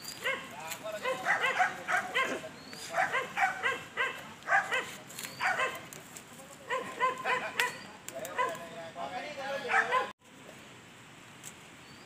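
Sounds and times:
dog barking in high yaps: 0:00.2 - 0:05.8, 0:06.7 - 0:08.6, 0:09.7 - 0:10.1.

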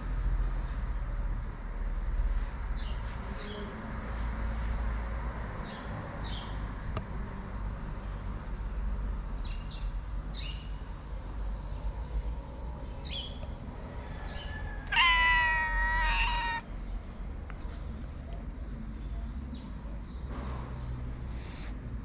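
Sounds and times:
cat meowing: 0:14.5 - 0:16.7.

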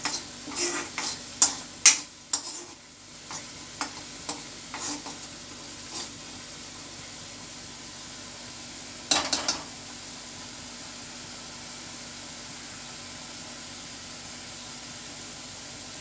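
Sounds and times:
paste sizzling in a pan: 0:00.0 - 0:16.0
metal ladle knocking pan: 0:09.1 - 0:09.7.

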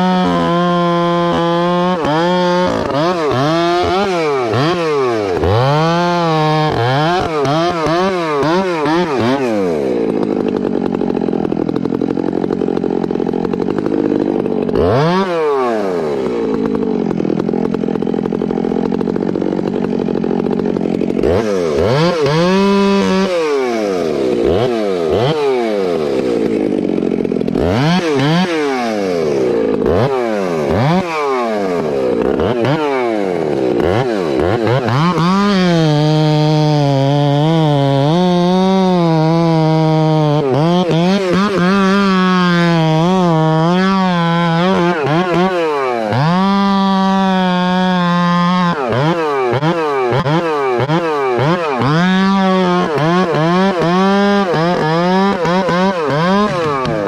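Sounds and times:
chainsaw cutting log: 0:00.0 - 0:57.0.

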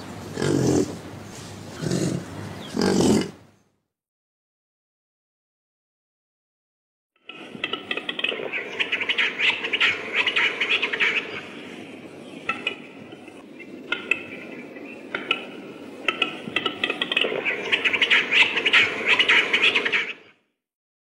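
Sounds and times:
high chirping chatter: 0:08.0 - 0:20.3.

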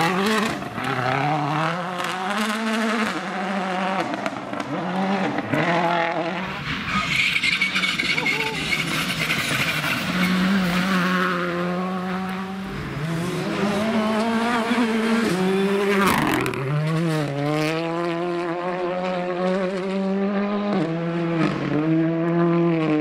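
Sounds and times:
rally car engines at high revs: 0:00.0 - 0:23.0.

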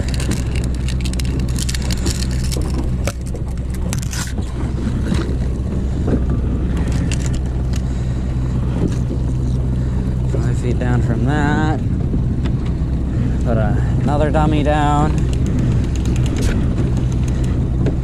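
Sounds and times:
fishing gear clicking and rattling: 0:00.0 - 0:10.4, 0:14.5 - 0:18.0
outboard motor droning: 0:00.0 - 0:18.0.

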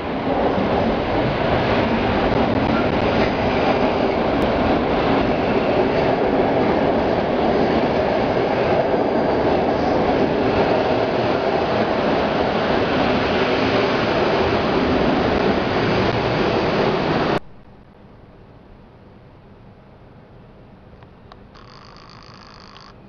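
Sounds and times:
train wheels rumbling on rails: 0:00.0 - 0:17.4.

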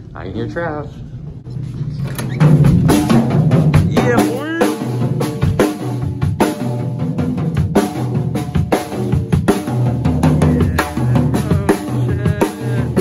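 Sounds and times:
drum kit playing: 0:02.3 - 0:13.0
low pitched notes: 0:09.7 - 0:13.0.

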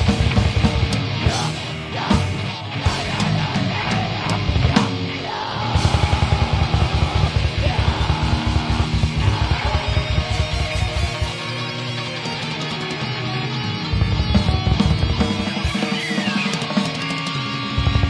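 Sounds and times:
rapid bass drum beats: 0:00.0 - 0:05.2, 0:05.8 - 0:11.4, 0:14.0 - 0:16.4
heavy metal band playing live: 0:00.0 - 0:18.0.

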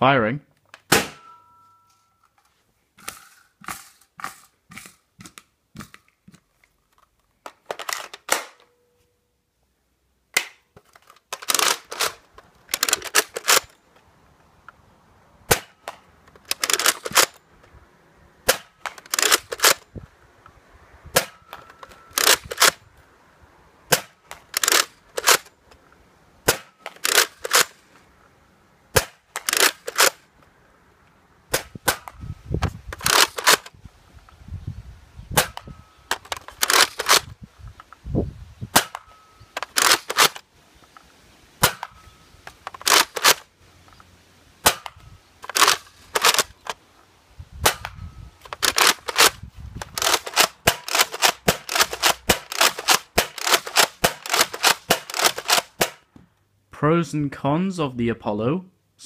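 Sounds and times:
toy blaster firing clacks: 0:33.0 - 0:33.7, 0:35.4 - 0:37.3, 0:42.7 - 0:43.4, 0:48.5 - 0:56.0.

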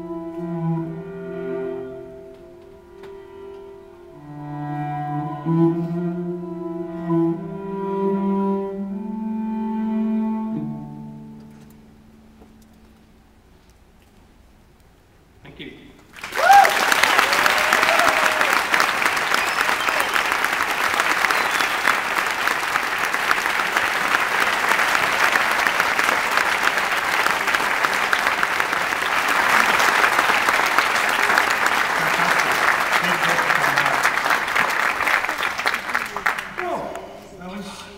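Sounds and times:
audience applauding: 0:16.1 - 0:37.2.

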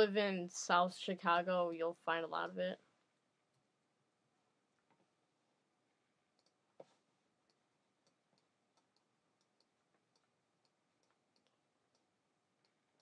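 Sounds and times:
faint ticking clicks: 0:06.3 - 0:13.0.

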